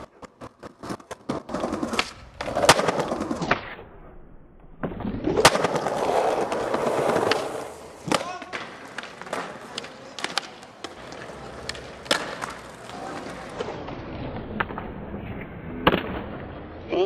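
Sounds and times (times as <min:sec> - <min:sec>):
skateboard landing clack: 0:00.0 - 0:03.8, 0:04.8 - 0:13.7
skateboard pop: 0:00.0 - 0:03.8, 0:04.8 - 0:13.8
skateboard wheels rolling: 0:00.0 - 0:03.8, 0:04.8 - 0:16.6
skateboard quick clicks: 0:05.4 - 0:13.6.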